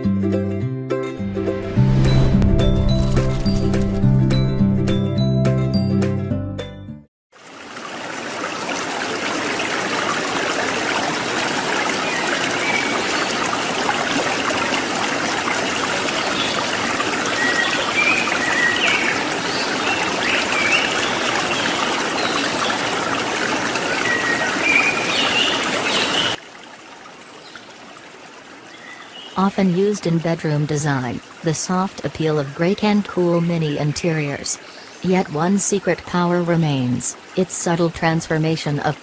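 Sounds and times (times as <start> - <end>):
music: 0.0 - 7.1
flowing water: 7.3 - 39.0.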